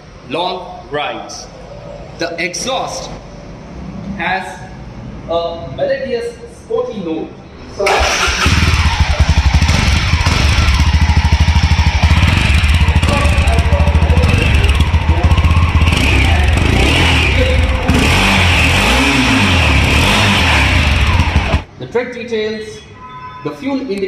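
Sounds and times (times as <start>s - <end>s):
motorcycle engine running: 7.9s - 21.7s.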